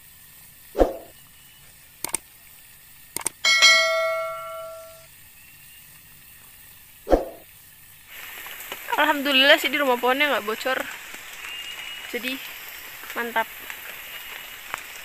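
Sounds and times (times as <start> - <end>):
quick clicks: 2.0 - 2.3, 3.1 - 3.4
notification bell ding: 3.4 - 5.0.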